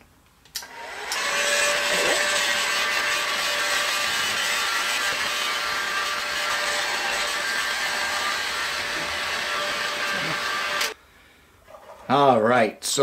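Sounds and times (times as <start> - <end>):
heat gun blowing air: 0.6 - 11.0.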